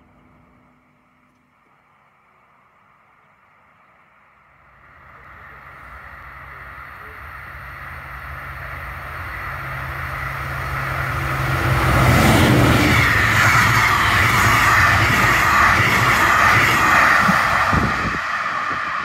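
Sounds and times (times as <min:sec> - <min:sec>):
diesel locomotive engine drone: 0:00.0 - 0:19.0
train wheels rumbling on rails: 0:04.4 - 0:19.0.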